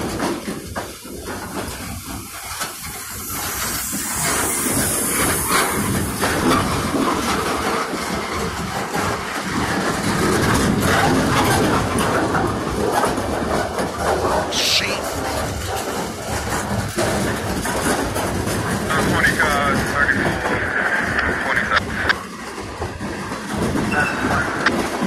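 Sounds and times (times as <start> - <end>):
hiss: 0.0 - 11.7
steel wheels rumbling on rail: 0.0 - 25.0
train clattering: 0.0 - 25.0.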